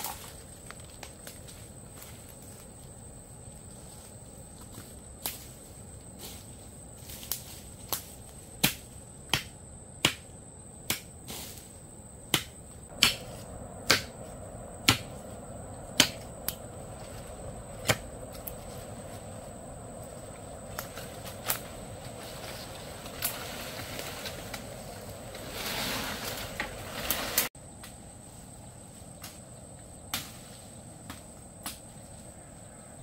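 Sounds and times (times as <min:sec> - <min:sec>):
sharp knocks or chops: 0:12.3 - 0:14.2.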